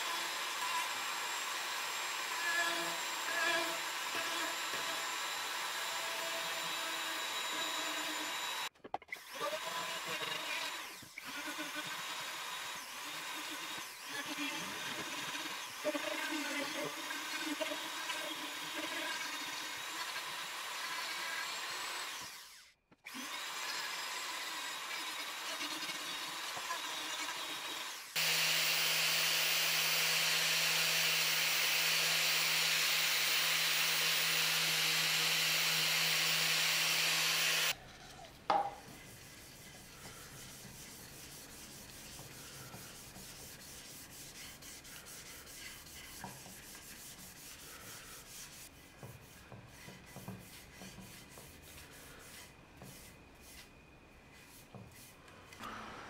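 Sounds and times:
rotary tool grinding wood: 0.0s - 38.4s
angle grinder sanding wood: 0.0s - 53.7s
knock: 38.5s - 38.8s
cloth rubbing on wood: 38.9s - 53.7s.

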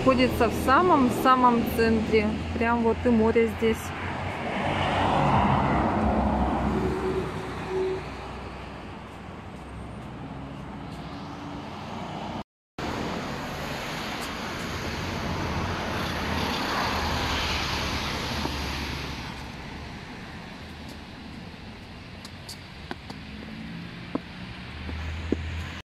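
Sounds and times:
cars passing on road: 0.0s - 25.8s.

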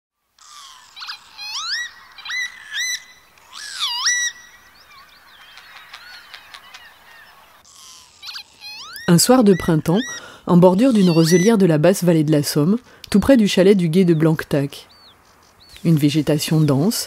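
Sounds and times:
bird chirps: 0.4s - 11.8s, 13.0s - 17.0s
faint steady hiss: 12.5s - 17.0s.

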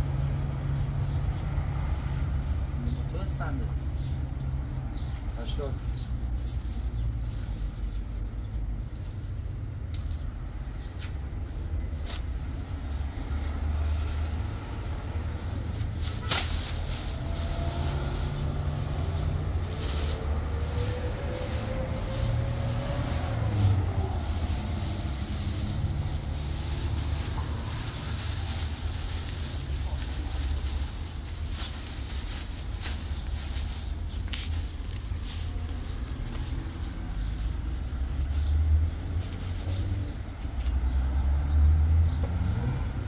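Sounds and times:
plastic bag rustling: 3.2s - 40.0s.

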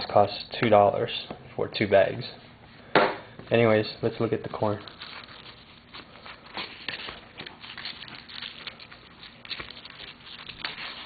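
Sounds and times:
corn husks rustling and crackling: 4.4s - 11.0s.

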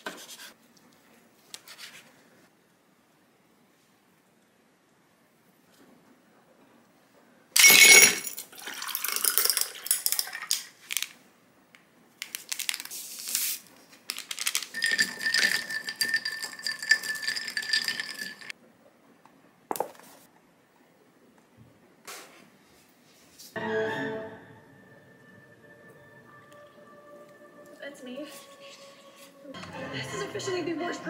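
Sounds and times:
ice cubes clinking into glass: 7.6s - 10.7s, 14.3s - 18.5s
tea pouring over ice: 8.5s - 10.7s, 14.5s - 18.5s.

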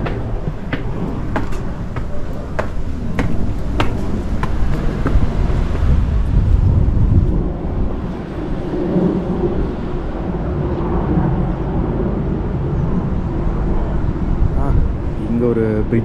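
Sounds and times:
footsteps: 0.0s - 6.3s
steady hum: 0.0s - 15.2s
wind buffeting microphone: 0.0s - 16.0s.

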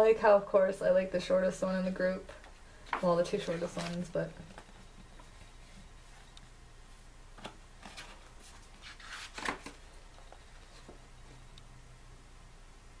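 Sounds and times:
book pages turning: 2.8s - 6.4s, 7.4s - 11.4s.

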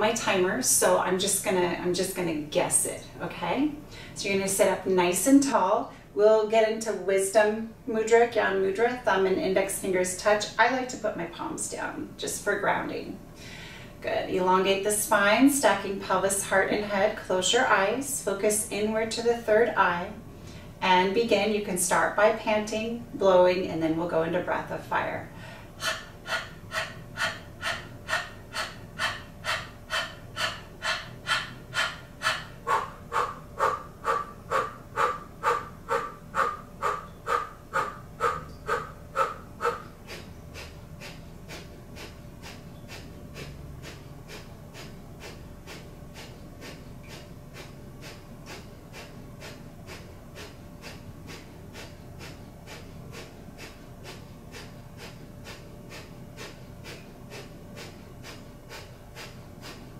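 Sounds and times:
rapid rhythmic breathing: 23.9s - 59.9s.

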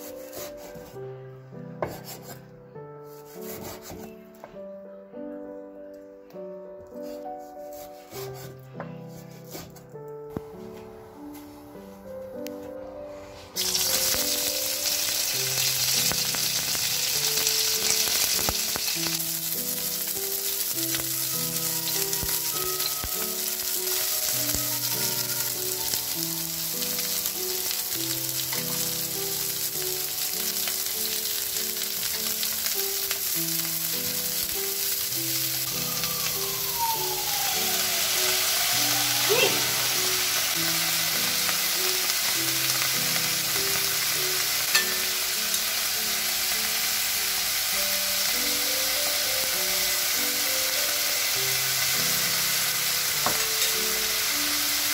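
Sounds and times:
quiet background music: 0.0s - 54.9s
vegetables sizzling in oil: 13.5s - 54.9s.

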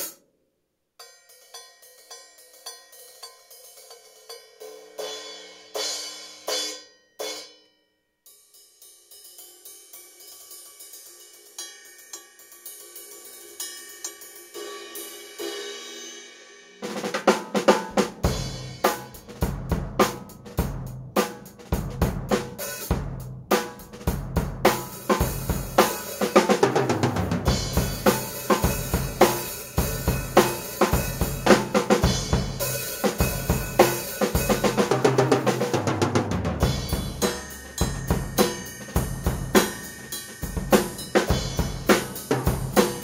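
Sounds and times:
drum kit steady beat: 0.0s - 0.2s, 13.0s - 43.0s
light cymbal strokes: 1.0s - 16.8s, 36.6s - 43.0s
cymbal crashes: 36.6s - 43.0s.

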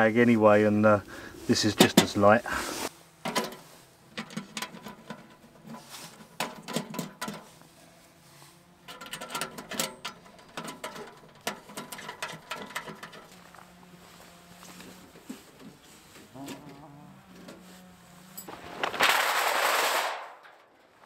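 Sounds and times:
metallic clicks and rattles: 8.8s - 13.3s.

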